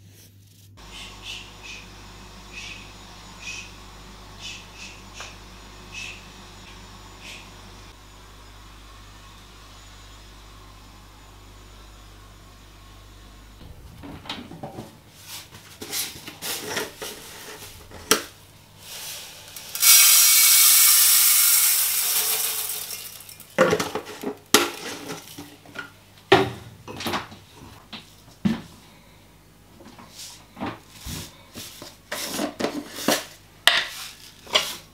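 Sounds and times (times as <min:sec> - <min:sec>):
grains pouring into metal pot: 0:18.8 - 0:23.6.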